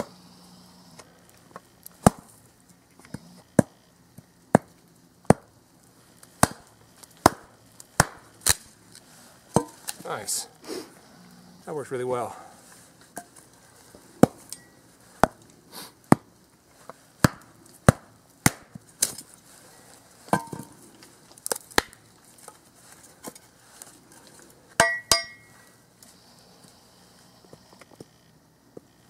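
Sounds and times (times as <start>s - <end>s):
shovel blade chopping wood: 2.0s - 2.3s, 6.4s - 8.6s, 17.2s - 19.2s
metallic ring: 14.5s - 14.8s, 24.8s - 25.7s.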